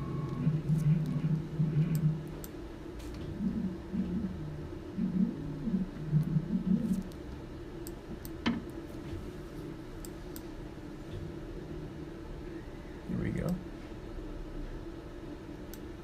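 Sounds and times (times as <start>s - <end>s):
motorized stage whine: 0.0s - 2.4s
steady machine hum: 0.0s - 16.0s.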